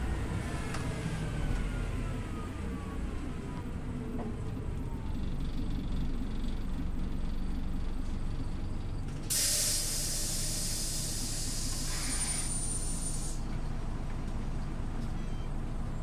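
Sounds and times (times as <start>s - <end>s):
bus engine running: 0.0s - 16.0s
compressed air hissing: 9.3s - 13.4s
thin high whistle: 9.5s - 13.4s.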